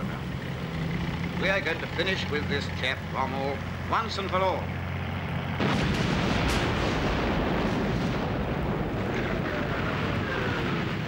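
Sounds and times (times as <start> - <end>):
gunfire and explosions: 5.5 - 11.0.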